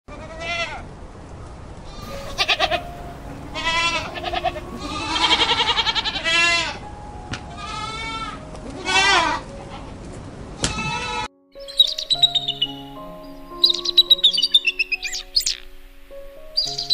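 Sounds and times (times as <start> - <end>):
goats bleating: 2.0 - 2.9, 3.5 - 6.8, 7.6 - 9.4.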